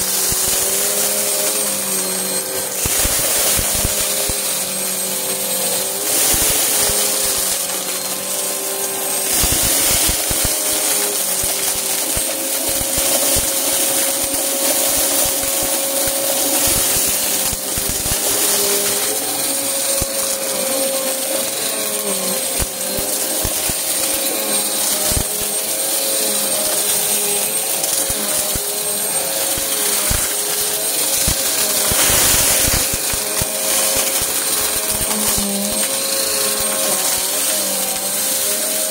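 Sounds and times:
debris rattling through vacuum: 0:00.0 - 0:38.9
vacuum cleaner motor whine: 0:00.0 - 0:38.9.

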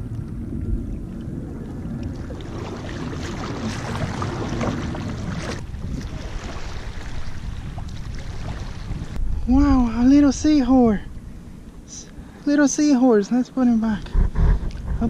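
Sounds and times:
wind buffeting microphone: 0:00.0 - 0:11.9, 0:13.9 - 0:15.0
paddle strokes splashing: 0:01.3 - 0:09.2.

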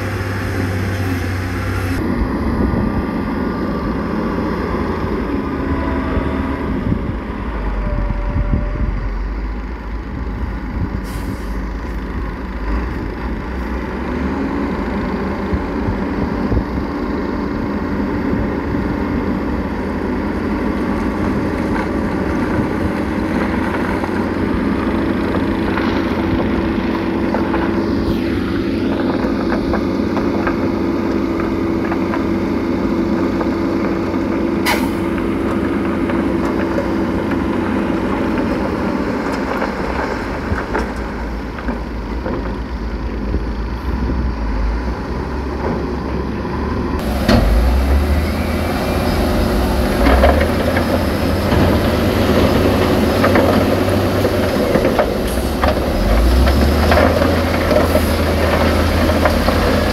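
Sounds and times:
diesel machinery droning: 0:00.0 - 0:59.9.

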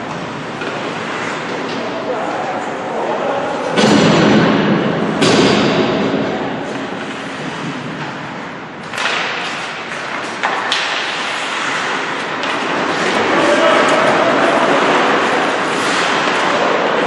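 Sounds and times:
skates scraping on ice: 0:00.0 - 0:04.1, 0:06.0 - 0:17.0
hockey stick and puck knocks: 0:08.8 - 0:14.3.

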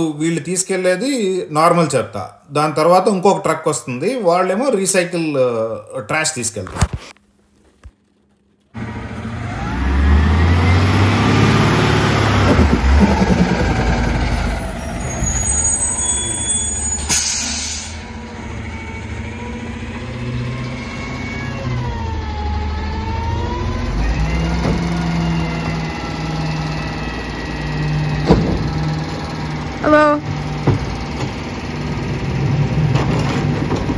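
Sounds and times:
garbage truck engine: 0:08.0 - 0:33.9
engine whine: 0:08.4 - 0:33.9
brakes squealing: 0:08.8 - 0:33.9
air brakes hissing: 0:14.1 - 0:18.2.

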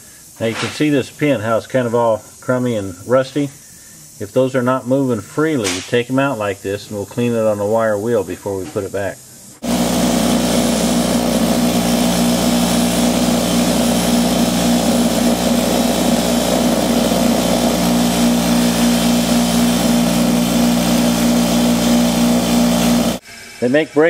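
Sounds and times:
wire wheel motor hum: 0:09.6 - 0:23.2.

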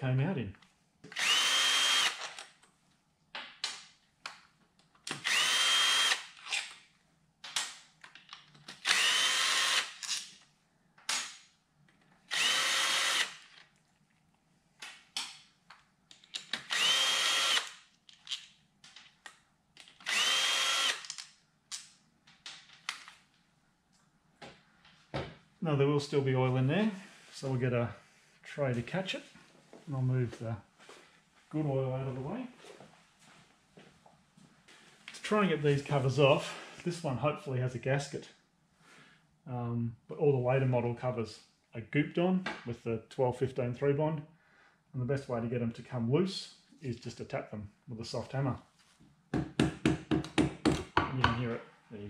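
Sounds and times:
cordless drill whining: 0:01.1 - 0:02.4, 0:05.1 - 0:06.4, 0:08.8 - 0:10.0, 0:12.3 - 0:13.4, 0:16.7 - 0:17.8, 0:20.0 - 0:21.0.

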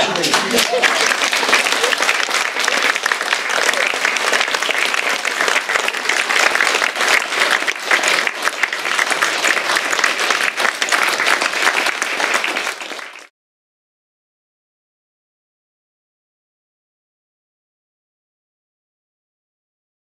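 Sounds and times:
crowd applauding: 0:00.0 - 0:13.3.

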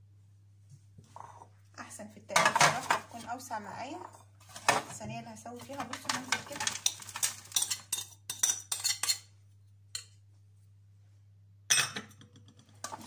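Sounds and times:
pasta rattling into metal tray: 0:05.8 - 0:07.8.

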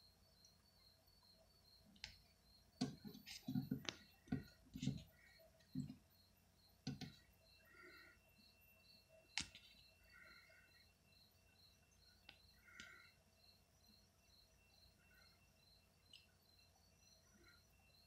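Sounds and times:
faint high chirping: 0:00.0 - 0:18.0.

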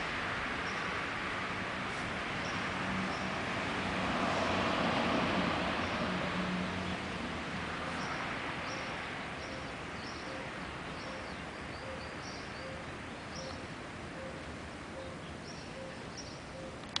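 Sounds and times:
city noise hum: 0:00.0 - 0:17.0
small birds chirping: 0:02.0 - 0:03.4, 0:06.8 - 0:17.0.

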